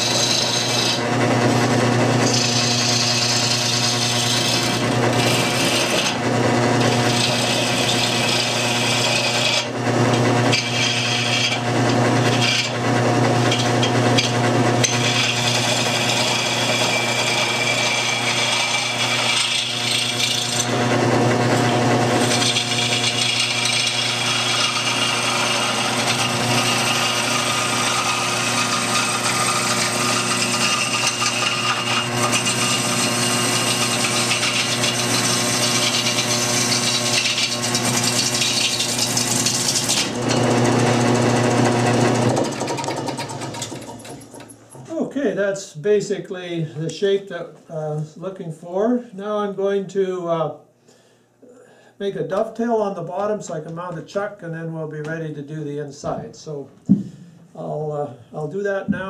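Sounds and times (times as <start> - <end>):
lathe motor hum: 0.0 - 44.8
turning tool scraping wood: 0.0 - 45.0.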